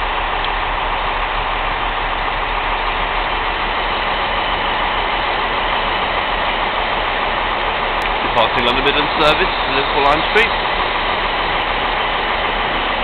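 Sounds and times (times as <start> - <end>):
electric train running slowly: 0.0 - 13.0.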